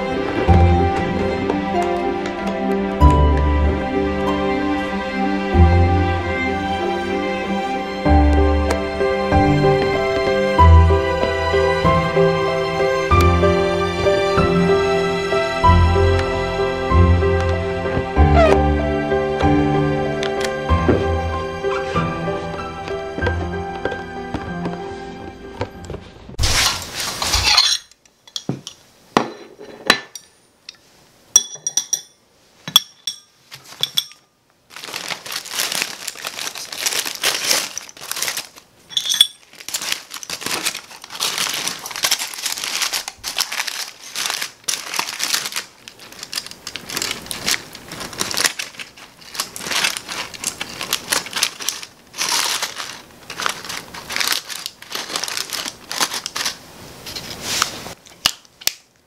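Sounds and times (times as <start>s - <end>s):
cutlery and dishes clinking: 27.2s - 30.8s, 31.4s - 34.3s, 38.9s - 39.5s
foil and paper crinkling: 34.7s - 58.5s.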